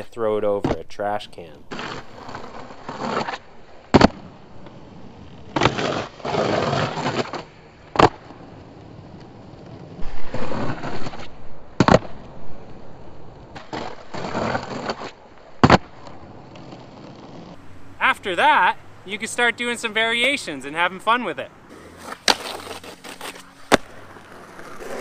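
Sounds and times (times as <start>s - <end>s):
skateboard wheels rolling: 0.0s - 25.0s
skateboard slapping down: 1.7s - 4.3s, 5.5s - 12.8s, 13.5s - 17.4s, 21.7s - 25.0s
skateboard grinding on ledge: 1.7s - 17.8s, 21.6s - 25.0s.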